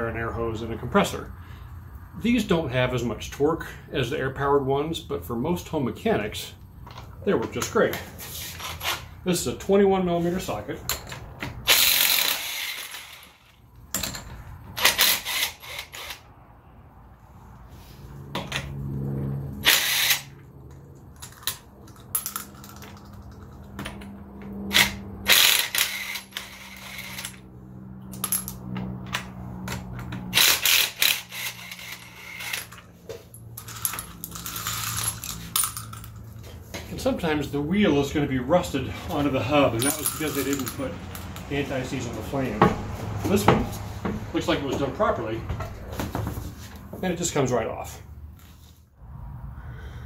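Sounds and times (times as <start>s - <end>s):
impact wrench bursts: 10.9s - 14.1s, 14.7s - 16.3s, 19.6s - 20.4s, 24.7s - 27.5s, 30.1s - 32.9s.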